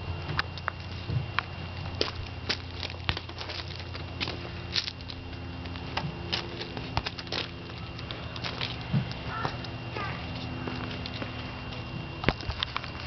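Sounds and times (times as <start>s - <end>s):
gravel crunching: 0.0s - 13.0s
low steady hum: 0.0s - 13.0s.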